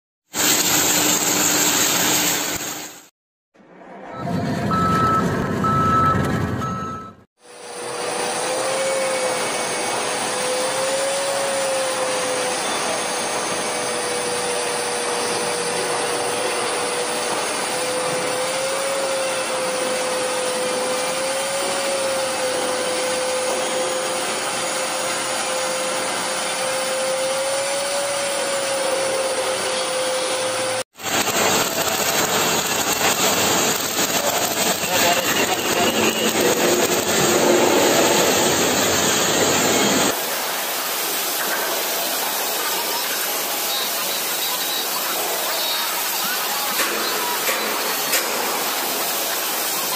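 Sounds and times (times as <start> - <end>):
drill motor whine: 4.8 - 49.9
arc welder crackling: 30.4 - 45.1.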